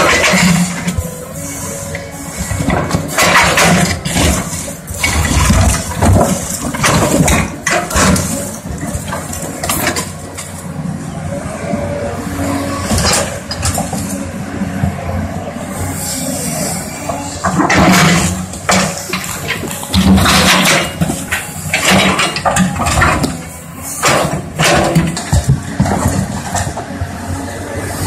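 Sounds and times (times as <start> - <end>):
concrete cracking and clattering: 0.0 - 1.0, 2.6 - 10.1, 17.4 - 26.8
excavator diesel engine under load: 0.0 - 28.0.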